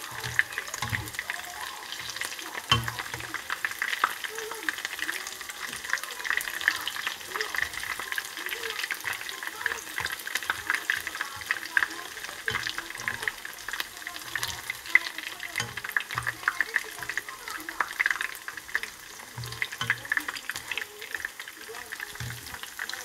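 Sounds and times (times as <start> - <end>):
chopsticks knocking on pot: 0.0 - 3.5, 9.9 - 18.2, 19.2 - 20.8, 22.0 - 22.7
fritters sizzling in oil: 0.0 - 23.0.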